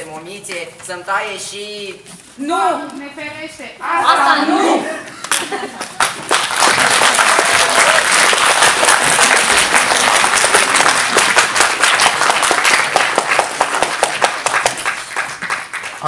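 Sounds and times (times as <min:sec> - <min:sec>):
audience applauding: 0:05.2 - 0:16.0.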